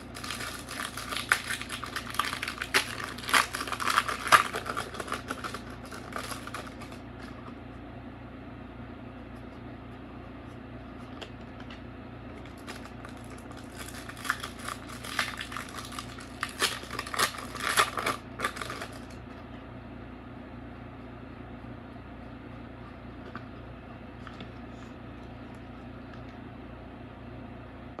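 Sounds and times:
foil wrapper crinkling: 0.0 - 7.4, 12.4 - 19.2
steady low hum: 0.0 - 28.0.

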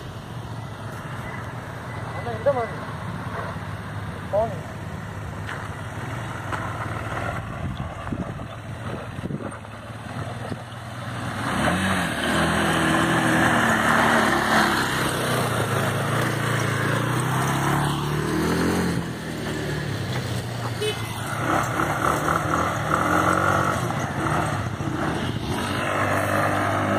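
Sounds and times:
quad bike engine revving: 5.6 - 26.9.

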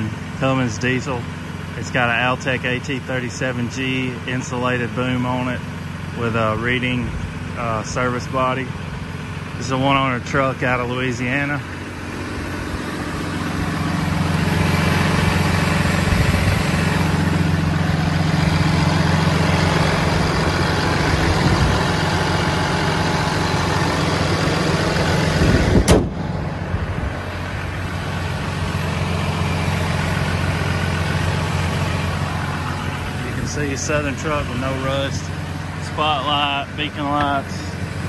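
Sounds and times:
diesel engine idling: 0.0 - 38.0
sharp knock: 25.8 - 26.2.

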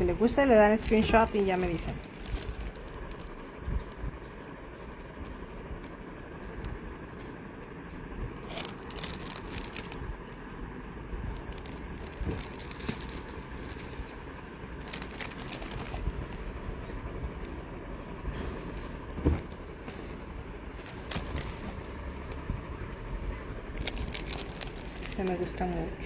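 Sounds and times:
low rumble of handling: 0.0 - 26.0
plastic sleeves crinkling: 0.2 - 6.0, 8.3 - 10.4, 11.2 - 16.6, 19.1 - 22.5, 23.6 - 26.0.

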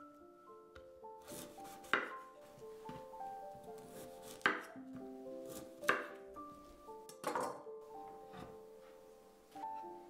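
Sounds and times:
soft background music: 0.0 - 10.0
knife cutting cauliflower: 1.2 - 2.2, 3.7 - 4.8, 5.4 - 6.2.

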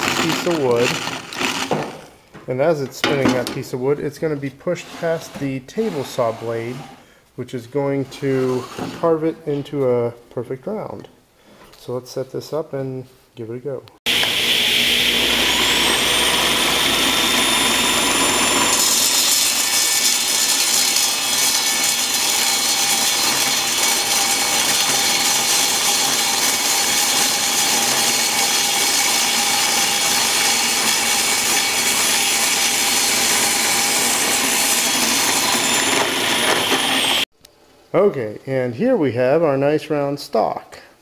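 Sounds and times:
saw blade rasping through wood: 0.0 - 2.0, 4.7 - 7.0, 14.1 - 37.3
table saw running: 0.0 - 2.2, 14.1 - 37.3.

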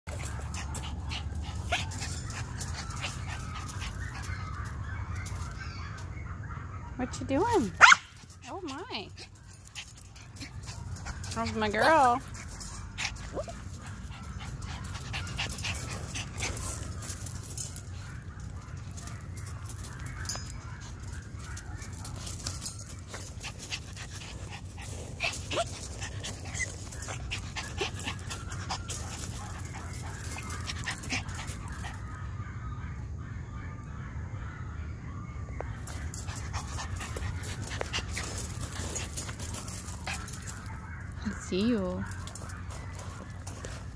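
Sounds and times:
paws crunching on gravel: 7.4 - 32.1, 35.7 - 43.9.

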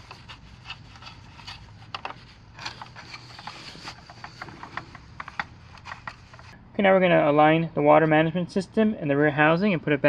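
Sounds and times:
plastic parts handled: 0.0 - 6.6.

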